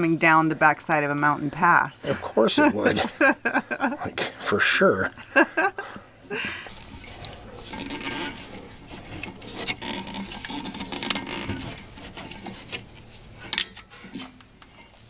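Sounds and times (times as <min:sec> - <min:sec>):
hands and tools scraping brass fitting: 0:06.7 - 0:15.0.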